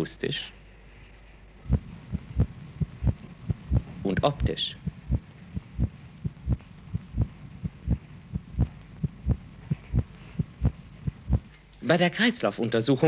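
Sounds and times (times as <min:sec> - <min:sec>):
steady low hum: 0:00.0 - 0:12.4
heartbeat thumps: 0:01.7 - 0:04.0, 0:04.8 - 0:11.5.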